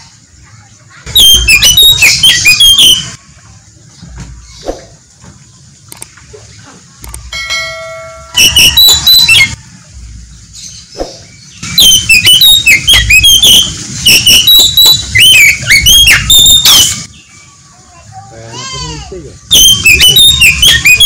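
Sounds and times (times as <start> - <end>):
bird singing whistled notes: 1.1 - 3.2, 8.0 - 9.6, 10.6 - 17.5, 19.4 - 21.0.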